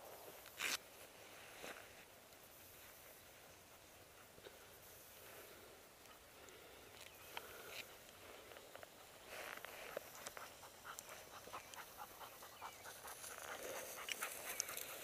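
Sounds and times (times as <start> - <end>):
dog panting fast: 10.0 - 15.0.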